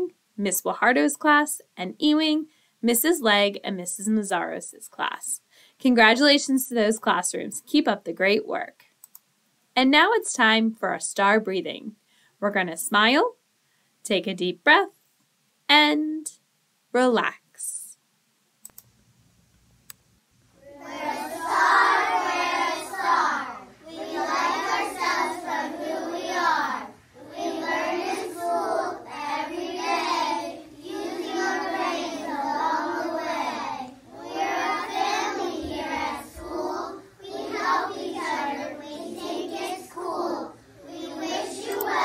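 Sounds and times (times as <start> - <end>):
children chanting in unison: 20.6 - 42.0.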